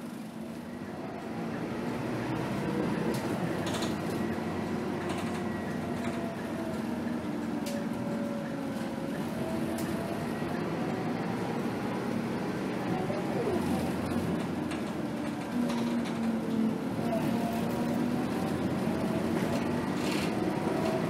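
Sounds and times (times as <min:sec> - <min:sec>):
bus engine hum and whine: 0:00.0 - 0:21.0
interior rattles and clicks: 0:03.1 - 0:04.3, 0:04.9 - 0:06.9, 0:13.7 - 0:16.6.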